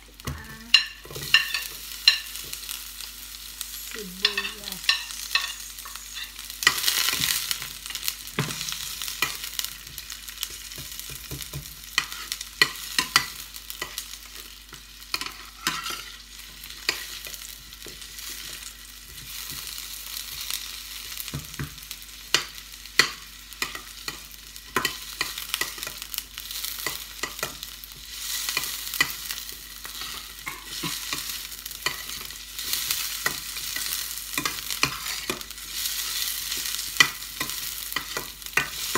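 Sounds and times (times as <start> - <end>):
onion and garlic sizzling in oil: 0.0 - 38.9
metal spoon scraping a pan: 15.1 - 16.2.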